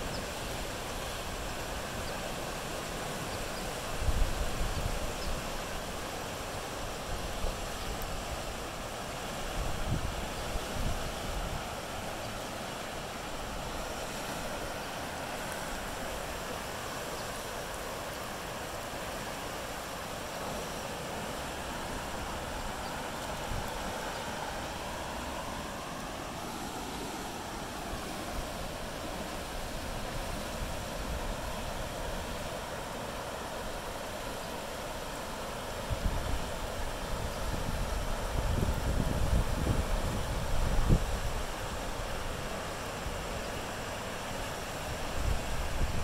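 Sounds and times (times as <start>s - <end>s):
creek water rushing: 0.0s - 46.0s.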